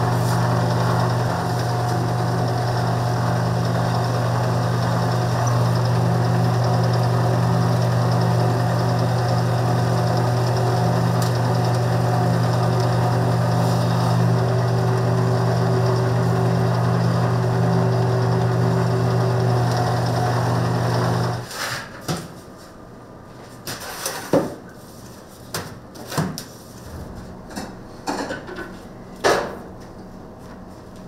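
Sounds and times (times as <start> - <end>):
kitchen machine motor humming: 0.0 - 21.5
kitchen knocks and clatter: 27.5 - 29.6.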